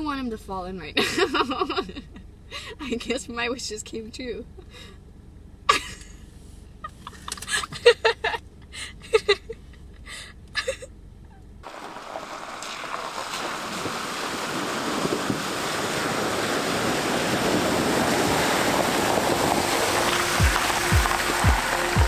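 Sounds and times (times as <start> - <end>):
water surging and splashing: 11.6 - 22.0.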